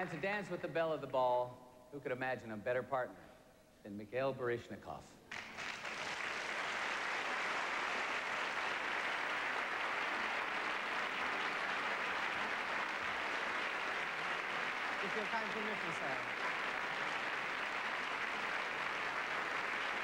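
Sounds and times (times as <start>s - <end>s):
audience applauding: 5.3s - 20.0s.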